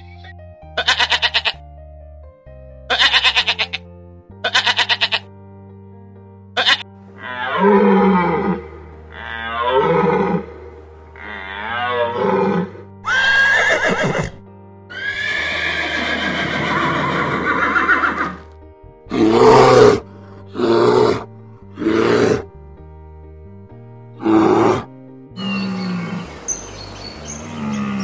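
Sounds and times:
background music: 0.0 - 28.0
deer bleating: 0.8 - 1.6, 2.9 - 5.3, 6.6 - 18.4, 27.2 - 28.0
horse whinnying: 6.6 - 10.6, 11.2 - 18.4
bear grunts: 27.4 - 28.0.

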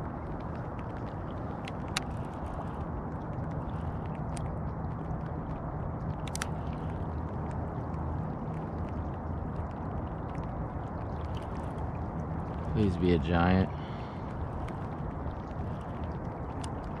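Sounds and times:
light rain: 0.0 - 17.0.

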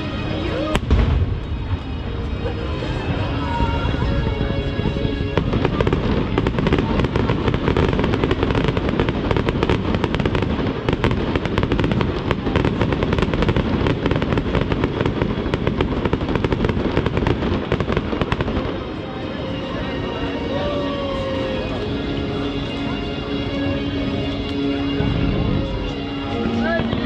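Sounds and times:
crackling fireworks: 0.0 - 27.0.

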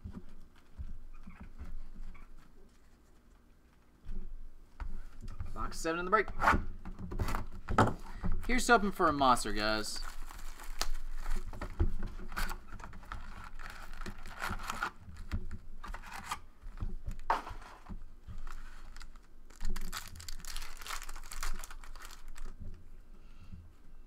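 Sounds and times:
plastic wrap crinkling and tearing: 9.4 - 16.4, 18.3 - 22.7
foil card pack tearing: 10.0 - 11.4, 12.4 - 15.3, 18.4 - 22.6.

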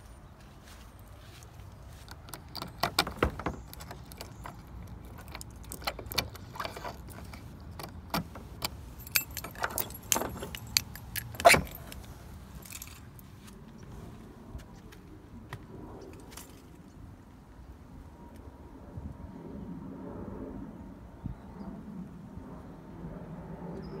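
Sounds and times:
keys jangling: 2.1 - 13.2
metal lock clicks: 2.2 - 12.1
lock clack: 2.3 - 13.1.

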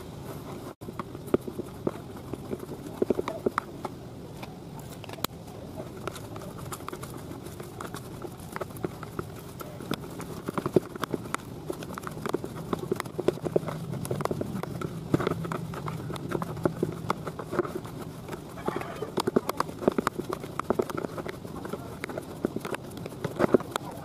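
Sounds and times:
plastic scoop scraping basin: 5.8 - 24.0.

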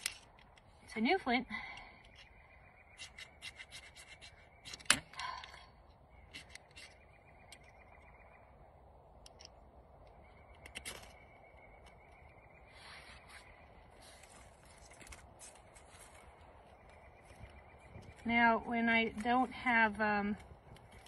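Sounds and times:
flint striker scraping: 0.0 - 0.8, 2.0 - 5.6, 6.2 - 7.8.

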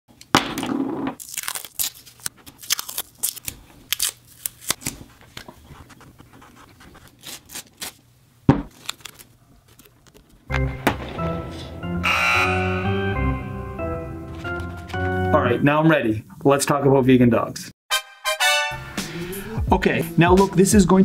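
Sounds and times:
masking tape ripping: 1.2 - 5.0, 8.7 - 10.2.

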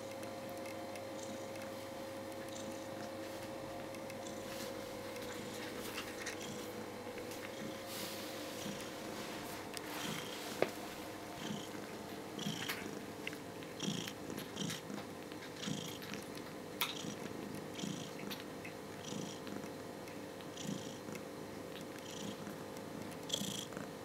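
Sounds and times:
cat purring: 1.1 - 3.2, 3.9 - 6.7, 8.5 - 9.2, 9.9 - 10.5, 11.3 - 19.8, 20.5 - 21.2, 21.8 - 24.0.

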